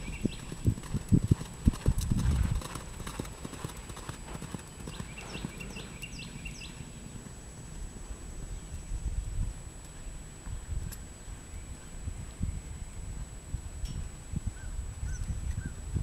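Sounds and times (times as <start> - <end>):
pony hoofbeats on sand: 0.0 - 6.0.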